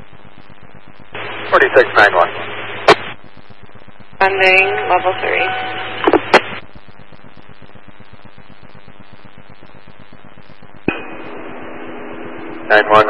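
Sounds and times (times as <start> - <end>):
radio static hiss: 0.0 - 13.0
radio transmission click: 1.2 - 11.4.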